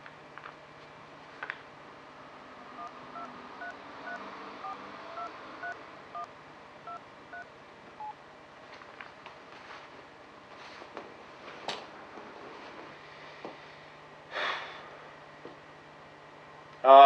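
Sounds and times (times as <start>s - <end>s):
touch-tone keypad beeps: 2.8s - 6.3s, 6.9s - 8.2s.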